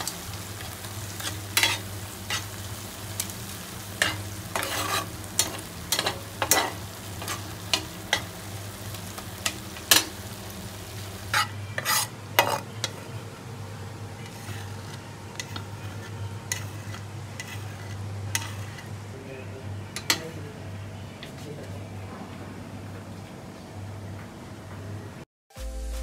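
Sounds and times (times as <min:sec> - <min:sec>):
paste sizzling in oil: 0:00.0 - 0:13.2, 0:14.1 - 0:19.0
spatula scraping pan: 0:00.8 - 0:13.3, 0:14.1 - 0:19.0.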